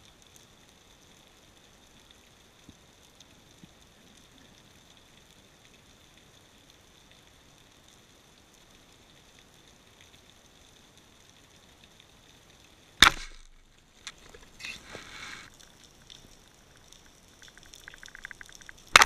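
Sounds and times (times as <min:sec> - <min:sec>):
small underwater clicks and crackles: 0:00.0 - 0:19.0
underwater hiss: 0:14.6 - 0:15.5.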